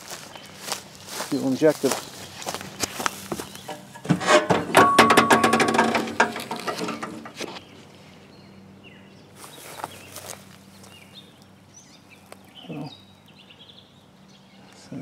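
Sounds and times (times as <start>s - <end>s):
birds chirping: 0.0s - 4.7s, 5.3s - 15.0s
metal clanking and rattling: 3.3s - 7.6s.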